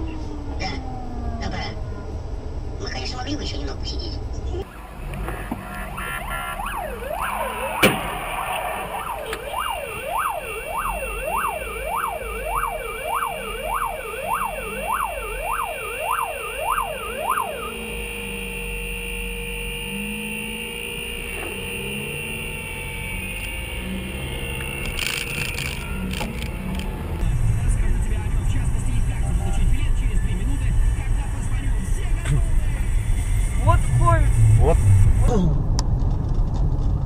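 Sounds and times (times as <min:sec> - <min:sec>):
road noise inside car: 0:00.0 - 0:37.0
siren yelping: 0:04.6 - 0:27.2.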